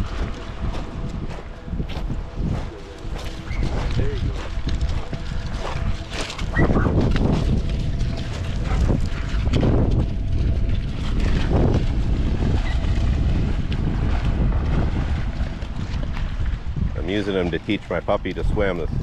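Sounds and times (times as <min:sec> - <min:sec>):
wind buffeting microphone: 0:00.0 - 0:19.0
dogs splashing in water: 0:03.5 - 0:16.7.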